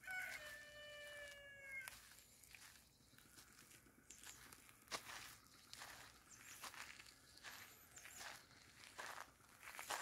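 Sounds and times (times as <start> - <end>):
rooster crowing: 0.0 - 2.2
footsteps on damp soil: 0.0 - 10.0.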